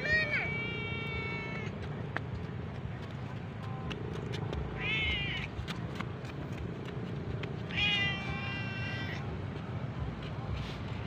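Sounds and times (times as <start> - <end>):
kitten meowing: 4.8 - 5.5, 7.7 - 9.2.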